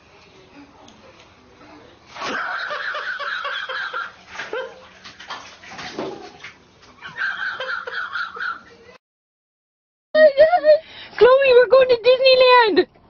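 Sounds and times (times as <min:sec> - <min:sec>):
water splashing in bathtub: 0:02.0 - 0:08.6.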